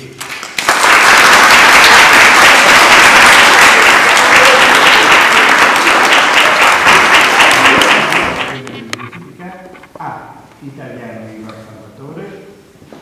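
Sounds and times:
crowd applauding: 0.2s - 8.7s.

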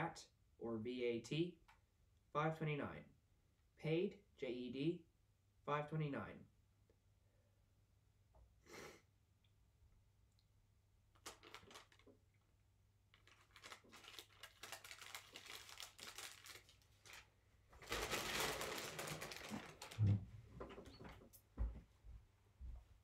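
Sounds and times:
paper crinkling and rustling: 11.2s - 12.2s, 13.1s - 20.8s.

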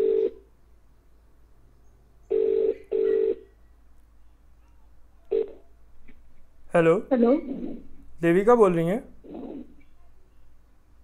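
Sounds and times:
phone ringback tone: 0.0s - 0.4s, 2.3s - 3.5s.

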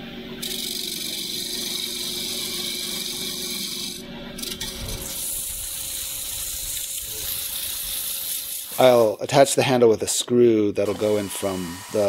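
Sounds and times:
lathe humming: 0.4s - 9.1s, 10.8s - 12.0s
tool scraping spinning wood: 0.4s - 9.1s, 10.8s - 12.0s
parting tool cutting wood: 10.8s - 12.0s.

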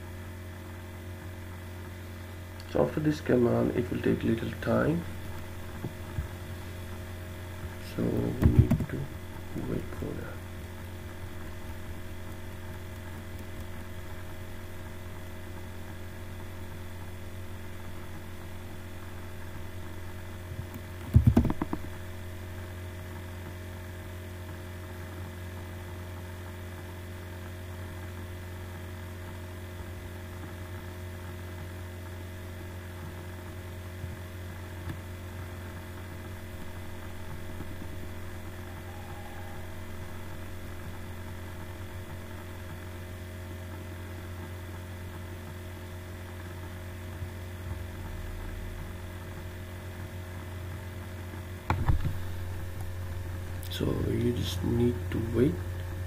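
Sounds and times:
low electrical mains hum: 0.0s - 56.0s.

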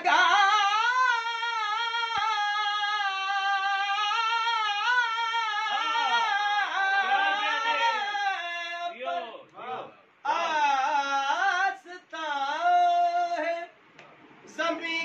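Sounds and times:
man singing unaccompanied: 0.0s - 9.0s, 10.2s - 13.8s, 14.5s - 15.0s.

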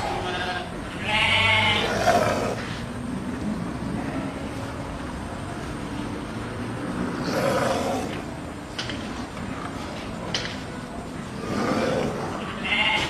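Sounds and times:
goat bleating: 0.0s - 1.9s, 12.6s - 13.0s.

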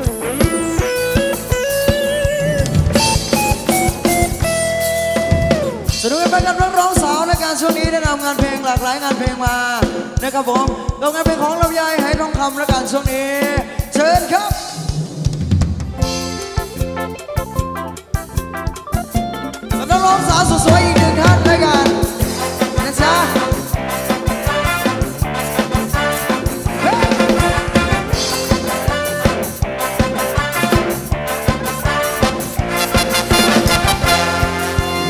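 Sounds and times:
drum kit fast beat: 0.0s - 35.0s
sliding wavering lead melody: 16.4s - 23.0s.

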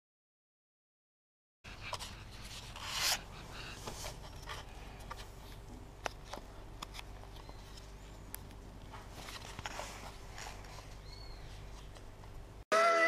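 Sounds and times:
low steady hum: 1.7s - 12.6s
camera handling rustles: 3.8s - 11.2s.

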